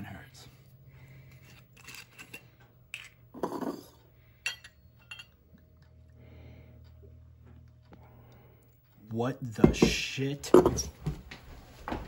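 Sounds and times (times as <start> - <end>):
glass bottle clinking: 3.0 - 5.4.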